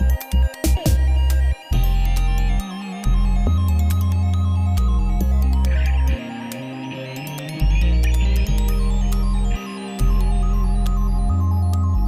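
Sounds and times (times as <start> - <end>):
deep bass line: 0.0 - 12.0
electronic music: 0.0 - 12.0.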